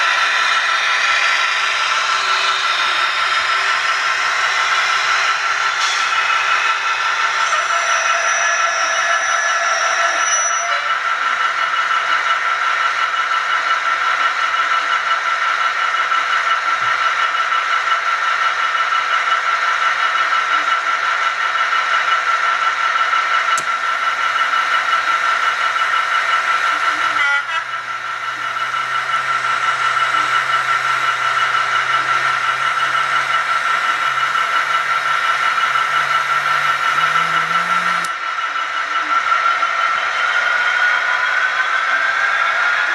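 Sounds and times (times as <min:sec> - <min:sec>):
model train high whine: 0:00.0 - 0:42.9
low motor hum: 0:23.6 - 0:38.2.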